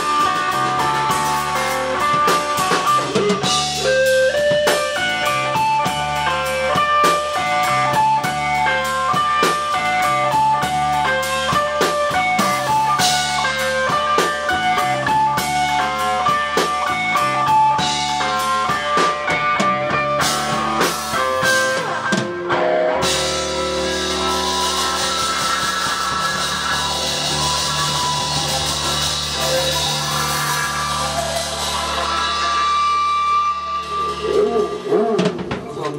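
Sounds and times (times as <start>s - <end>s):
electric guitar picking notes: 0.0s - 35.3s
rock band playing: 0.0s - 35.9s.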